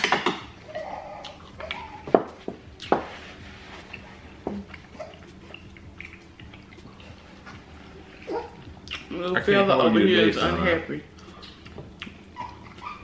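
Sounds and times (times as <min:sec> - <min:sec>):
quiet chewing: 0:03.7 - 0:09.1.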